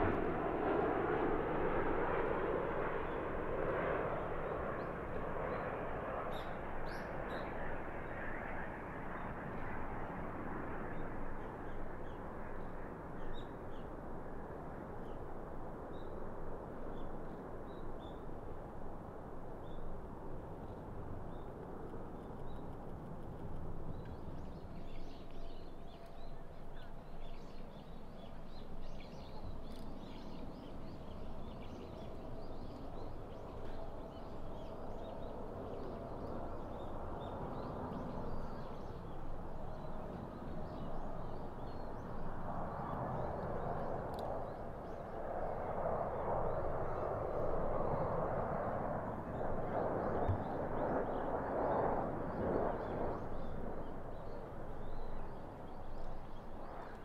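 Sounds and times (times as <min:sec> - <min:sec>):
jet aircraft rumble: 0:00.0 - 0:57.0.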